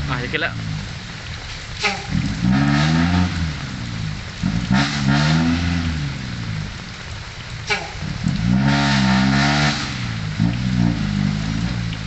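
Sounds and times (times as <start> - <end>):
diesel truck engine revving hard: 2.2 - 3.7, 4.4 - 6.2, 8.2 - 12.0.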